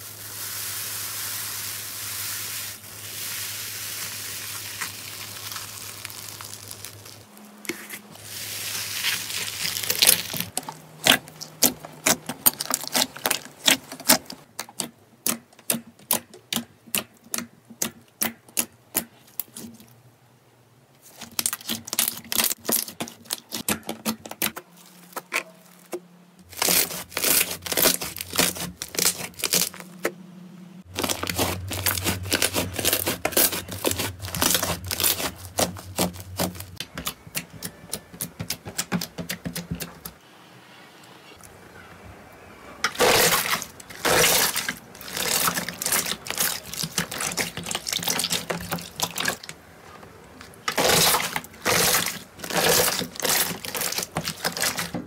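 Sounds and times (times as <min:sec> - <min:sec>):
low steady hum: 0:24.6 - 0:38.6.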